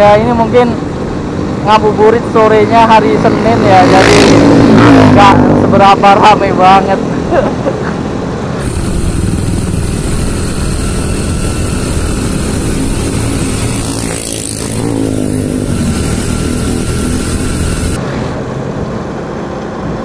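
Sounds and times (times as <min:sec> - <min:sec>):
wind noise on microphone: 0:08.6 - 0:18.0
small motorcycle engines: 0:08.6 - 0:18.3.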